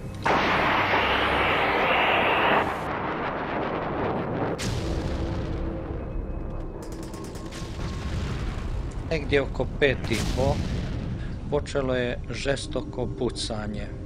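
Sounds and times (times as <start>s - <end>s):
gunfire burst: 0.2s - 3.4s
artillery bang: 0.2s - 11.5s
rumbling: 0.3s - 12.7s.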